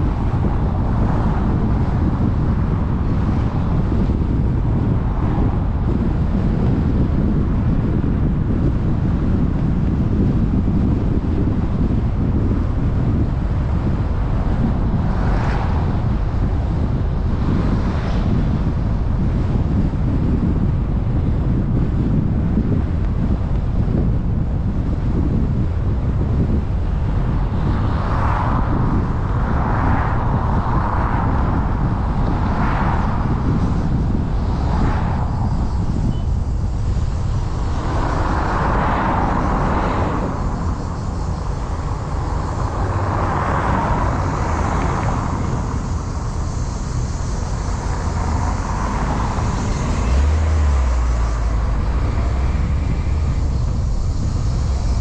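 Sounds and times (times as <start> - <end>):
road and wind noise: 0.0 - 55.0
hiss of passing traffic: 11.4 - 20.6, 24.7 - 55.0.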